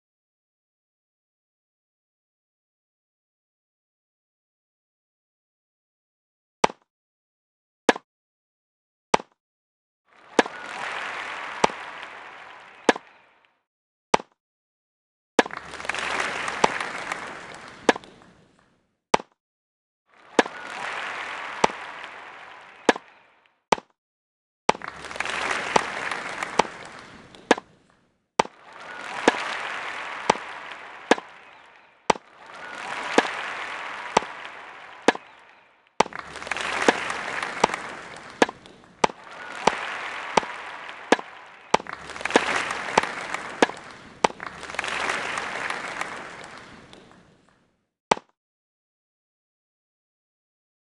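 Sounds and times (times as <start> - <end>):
crowd applause: 10.1 - 13.4, 15.4 - 18.4, 20.1 - 23.4, 24.7 - 27.8, 28.4 - 47.3
tennis ball strikes: 12.8 - 13.1, 14.2 - 14.4, 17.8 - 18.3, 19.2 - 19.4, 21.5 - 21.9, 22.8 - 23.1, 25.6 - 27.8, 29.2 - 31.4, 34.1 - 34.4, 35.0 - 35.4, 36.8 - 44.4.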